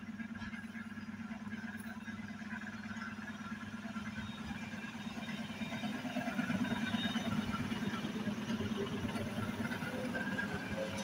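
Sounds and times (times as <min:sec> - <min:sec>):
electric train running past: 0:02.4 - 0:11.0.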